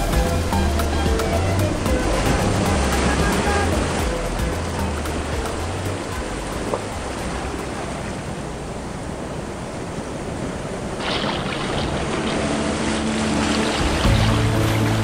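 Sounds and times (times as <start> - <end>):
background music with steady tones: 0.0 - 7.9, 12.0 - 15.0
sea surf washing on beach: 0.0 - 15.0.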